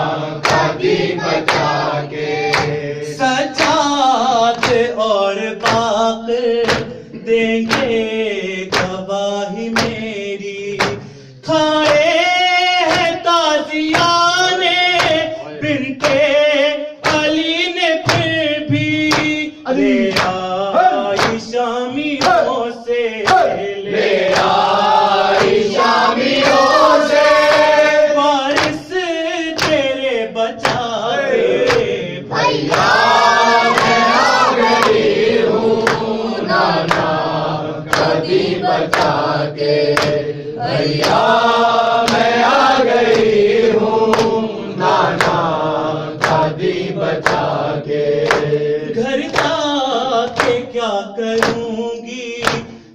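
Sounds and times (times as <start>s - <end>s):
men chanting a lament: 0.0s - 52.9s
hand slaps on chest: 2.4s - 2.8s, 6.6s - 6.9s, 9.8s - 10.0s, 10.8s - 11.0s, 12.9s - 13.2s, 15.0s - 15.3s, 19.0s - 19.4s, 24.3s - 24.6s, 28.6s - 28.8s, 29.6s - 29.8s, 35.8s - 36.1s, 38.9s - 39.2s, 40.0s - 40.2s, 44.1s - 44.4s, 47.2s - 47.5s, 48.2s - 48.5s.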